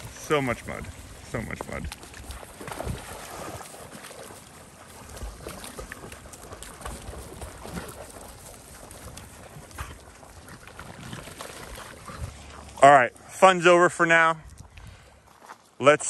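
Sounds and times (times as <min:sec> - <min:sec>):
wind rumbling on microphone: 0:00.0 - 0:03.8, 0:14.4 - 0:15.2
dogs splashing in water: 0:00.0 - 0:12.8.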